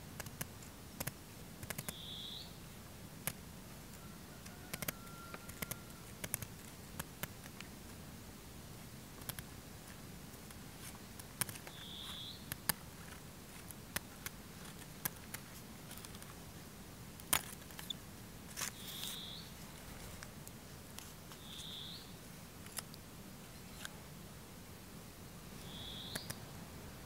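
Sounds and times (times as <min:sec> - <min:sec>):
scissors snipping paper: 0:04.7 - 0:07.6.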